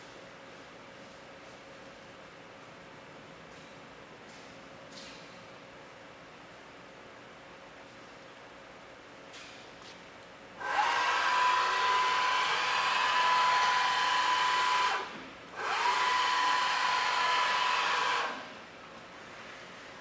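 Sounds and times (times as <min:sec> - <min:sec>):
milling machine spindle whine: 0:10.6 - 0:18.5.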